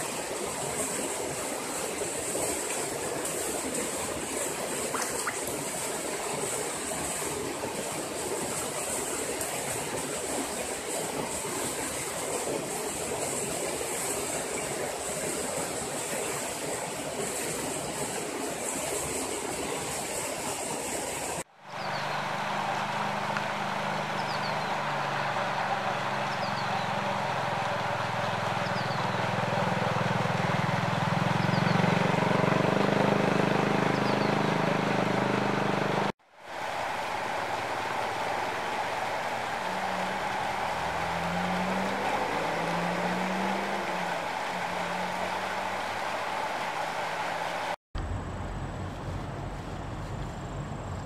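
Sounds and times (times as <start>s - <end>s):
low motor hum: 21.7s - 51.0s.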